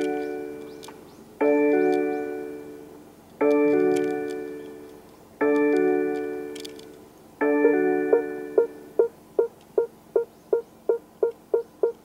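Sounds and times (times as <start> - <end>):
car reversing warning chime: 7.4 - 12.0.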